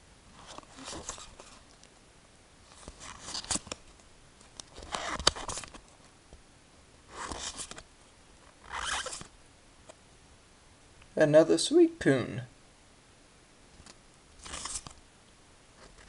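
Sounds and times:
cards sliding swishes: 0.4 - 1.7, 2.7 - 3.8, 4.7 - 5.8, 7.1 - 7.8, 8.7 - 9.3, 14.4 - 15.0.

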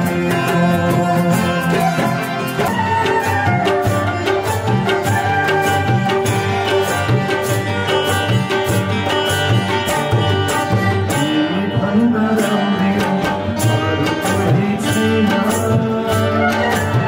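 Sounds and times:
man singing: 0.0 - 3.9, 9.9 - 17.0
acoustic guitars: 0.0 - 17.0
harmonium: 0.0 - 17.0
percussion beat: 0.0 - 17.0
sarangi: 0.0 - 17.0
bamboo flute: 1.5 - 7.2, 16.2 - 17.0.

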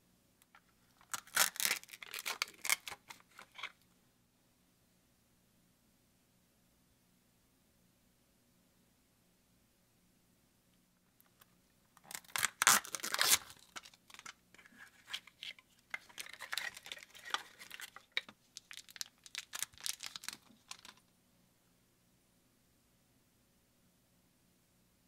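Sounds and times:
plastic wrappers crinkling and tearing: 1.0 - 3.7, 12.0 - 21.0.

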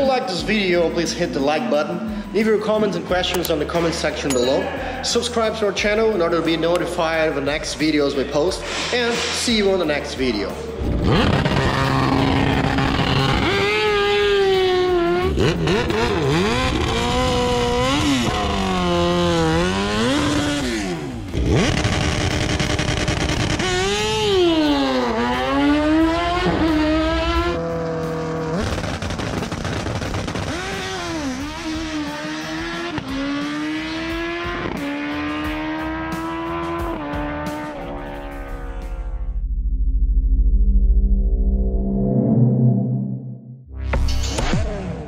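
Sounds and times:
motorcycle engines revving: 10.8 - 39.1
engine crackles: 15.3 - 36.7.

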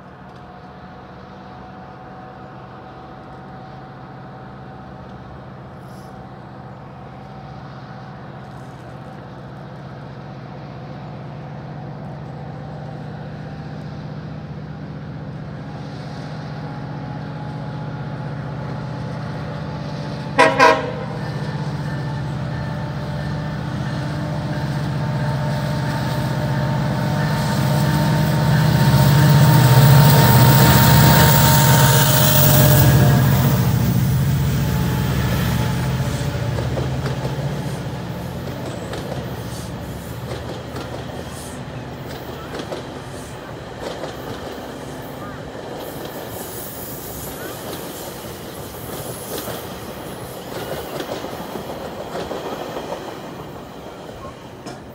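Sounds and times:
diesel locomotive rumble: 0.0 - 54.9
train horn toots: 20.2 - 34.0
train wheels clicking: 20.4 - 54.9.

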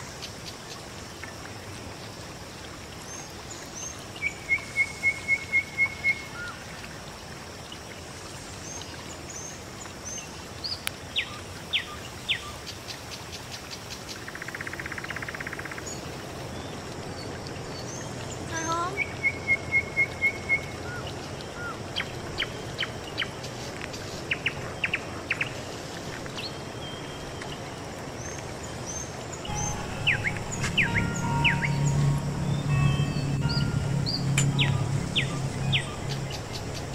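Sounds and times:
outdoor background noise: 0.0 - 36.9
birds chirping: 28.8 - 36.9.

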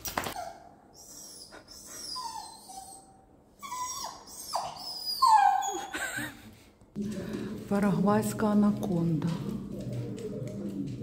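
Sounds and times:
dog whining: 0.2 - 6.0.

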